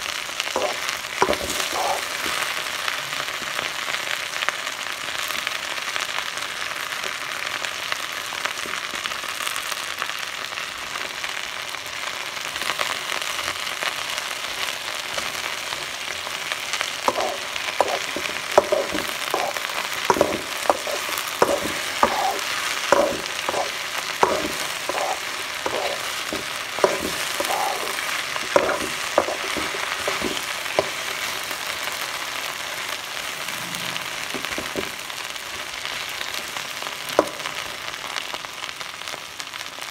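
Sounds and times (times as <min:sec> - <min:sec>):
okra sizzling in a wok: 0:00.0 - 0:39.9
metal spatula scraping a pan: 0:00.6 - 0:02.4, 0:17.1 - 0:31.2.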